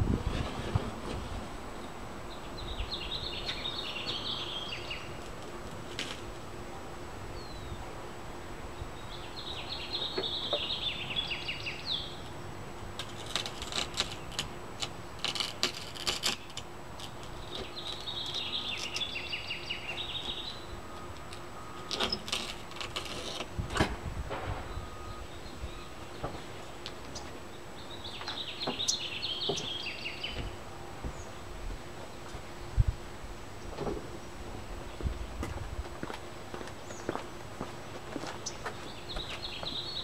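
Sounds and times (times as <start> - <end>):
bird chattering song: 1.8 - 5.2, 8.8 - 12.2, 17.4 - 20.7, 24.7 - 30.5, 38.4 - 40.0
knife scraping windshield edge: 13.0 - 17.2.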